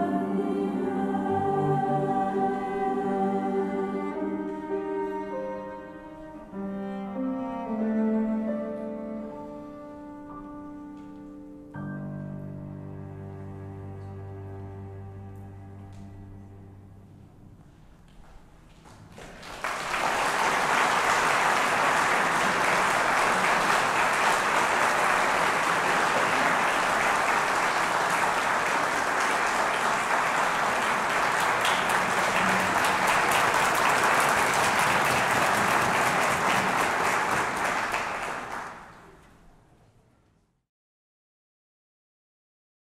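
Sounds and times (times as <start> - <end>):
audience applauding: 18.9 - 39.2.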